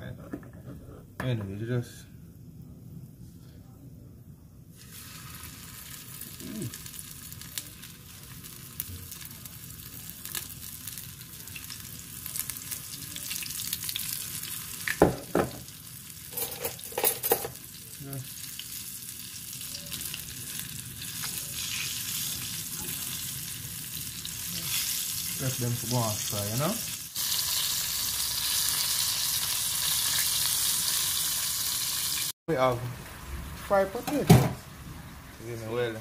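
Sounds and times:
fish frying in hot oil: 4.8s - 35.3s.

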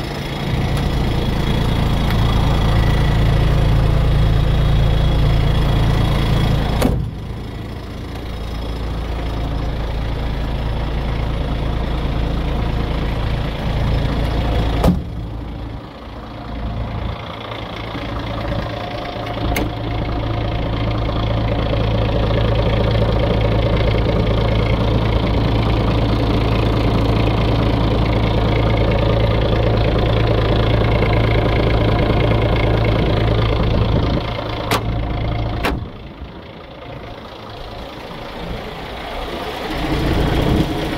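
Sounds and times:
diesel engine idling: 0.0s - 40.9s.

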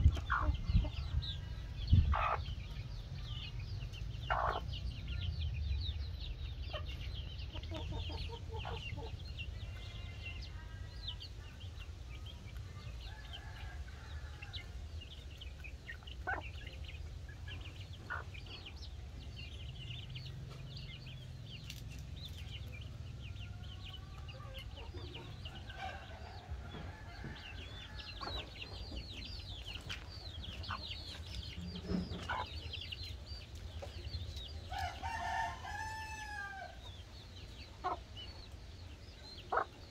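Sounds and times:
hen clucking: 0.0s - 3.3s, 4.2s - 5.3s, 6.6s - 10.7s, 15.5s - 18.8s, 23.9s - 33.2s, 37.7s - 38.5s, 39.4s - 39.9s
low rumble: 0.0s - 9.6s
chicks peeping: 0.0s - 39.9s.

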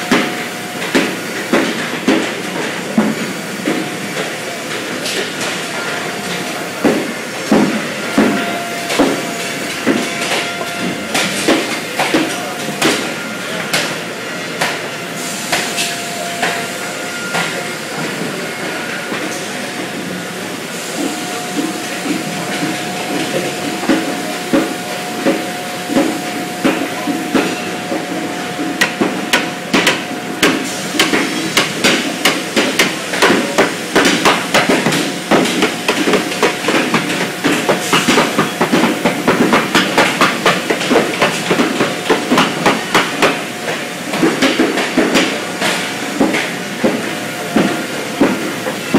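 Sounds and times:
steady workshop hiss: 10.9s - 48.9s.

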